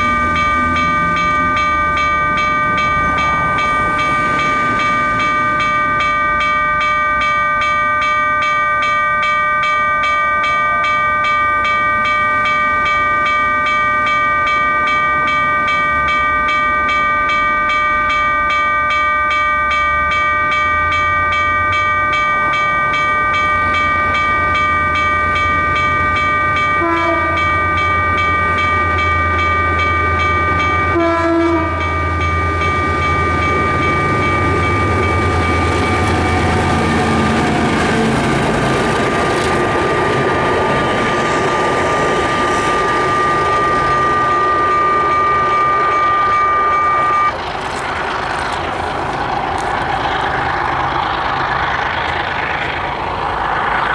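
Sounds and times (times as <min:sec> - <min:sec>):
diesel locomotive engine: 0:00.0 - 0:53.9
level-crossing warning bell: 0:00.0 - 0:53.9
locomotive horn toots: 0:26.8 - 0:27.5, 0:30.9 - 0:31.9.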